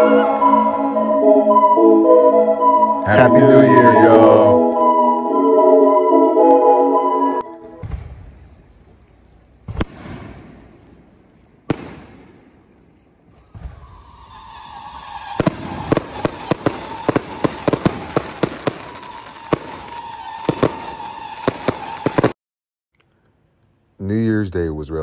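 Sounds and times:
steady whistling tone: 0.0 - 7.8
firework booms: 7.8 - 8.4, 9.6 - 10.8, 11.7 - 12.4, 13.4 - 14.3, 15.3 - 22.3
rapid firework bangs and crackles: 9.6 - 10.9, 11.6 - 12.5, 13.3 - 22.4.

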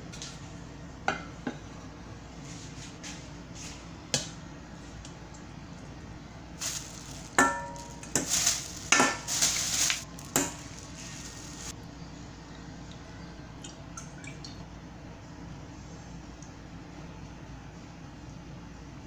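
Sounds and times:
ice balls clunking into metal bowl: 6.6 - 11.7.

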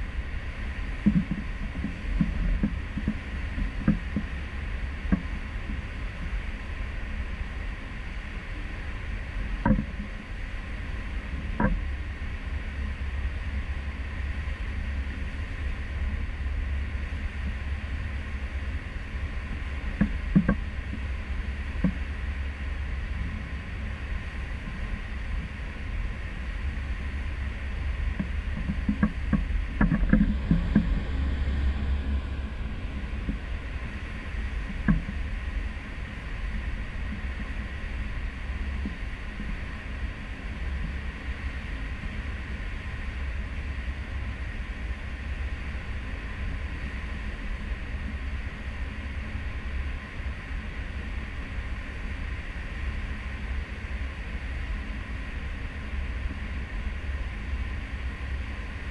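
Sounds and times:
ship engine low rumble: 0.0 - 58.9.

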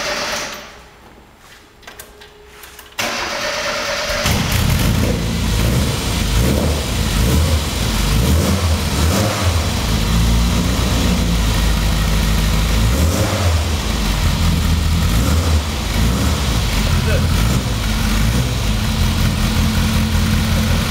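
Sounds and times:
car engine running: 4.3 - 20.9.

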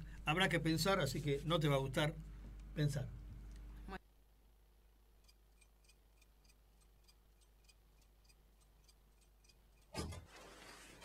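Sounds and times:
faint clock-like ticking: 5.2 - 9.9.

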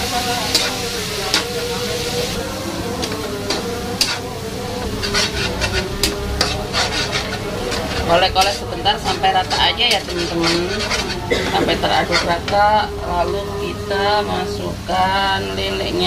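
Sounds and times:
leaves sizzling in oil: 0.0 - 16.0
spatula scraping and tapping pan: 3.0 - 4.2, 4.8 - 12.6.

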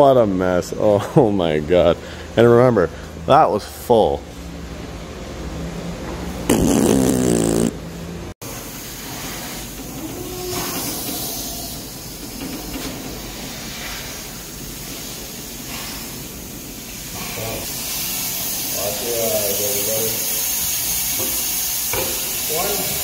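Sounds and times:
loud fluttering burp: 6.5 - 7.8
air hissing from tire bead: 8.4 - 23.0.

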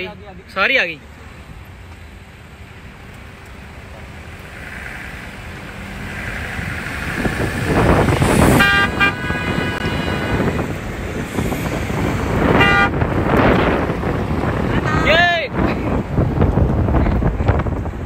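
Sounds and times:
car road and wind noise: 0.0 - 18.0
car horn honking: 7.7 - 10.8, 12.3 - 13.9, 14.6 - 15.6.

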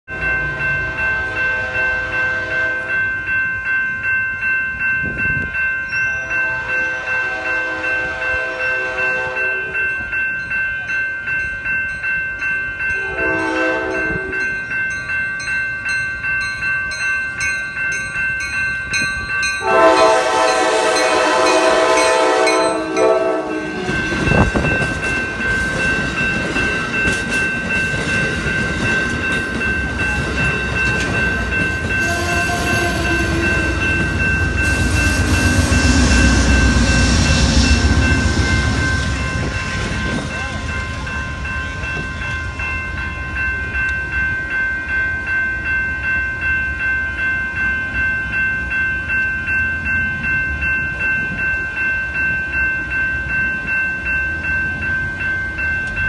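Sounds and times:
crossing bell ringing: 0.1 - 56.0
train wheel and rail noise: 0.1 - 56.0
train horn blasts: 0.8 - 3.0, 6.3 - 9.8, 13.0 - 14.4, 19.6 - 24.0, 32.0 - 33.9.

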